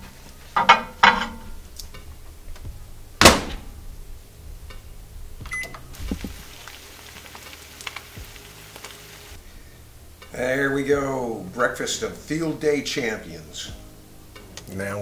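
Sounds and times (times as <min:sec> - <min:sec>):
microwave door slamming: 0:03.2 - 0:03.7
microwave keypad beep: 0:05.5 - 0:05.9.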